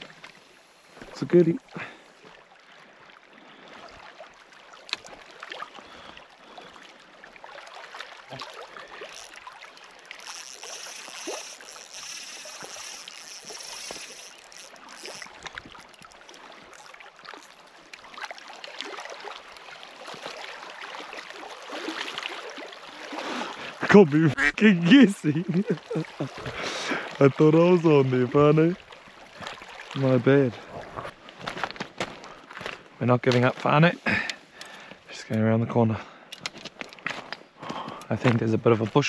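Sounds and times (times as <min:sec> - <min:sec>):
waves lapping on stony shore: 0:00.0 - 0:35.3
light wind: 0:00.0 - 0:39.0
fishing reel being wound: 0:08.9 - 0:17.6
small clicks: 0:10.0 - 0:16.1.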